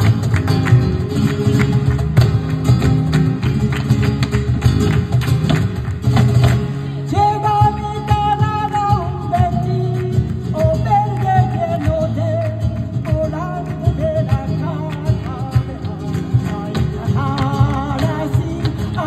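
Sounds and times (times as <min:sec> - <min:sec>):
percussion hits: 0:00.0 - 0:06.9
hand-clapping: 0:00.0 - 0:19.0
strummed guitars: 0:00.0 - 0:19.0.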